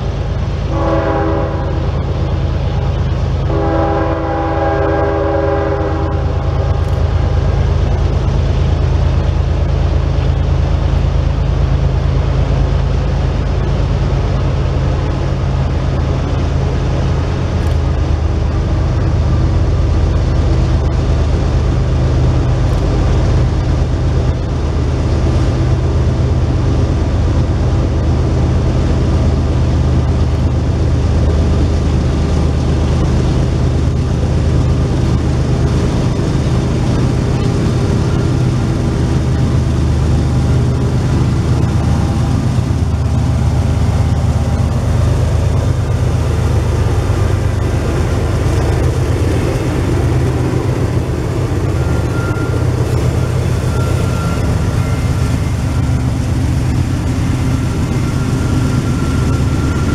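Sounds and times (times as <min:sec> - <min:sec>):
diesel locomotive engine drone: 0:00.0 - 0:59.9
train horn blasts: 0:00.7 - 0:02.1, 0:03.4 - 0:07.0.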